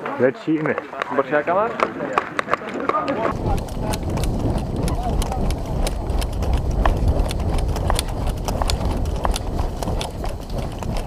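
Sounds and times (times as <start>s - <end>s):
loose gear rattling: 3.3s - 11.0s
running footsteps on dry leaves: 3.3s - 11.0s.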